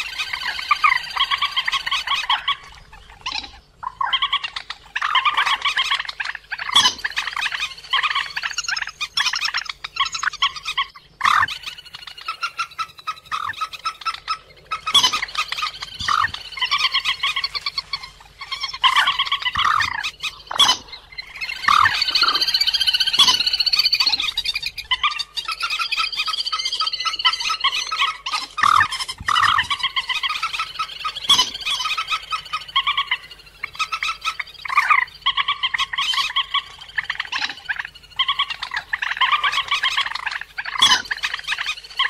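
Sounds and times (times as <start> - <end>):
rapid repeated bird calls: 0.0 - 42.0
short sharp bird notes: 11.2 - 42.0.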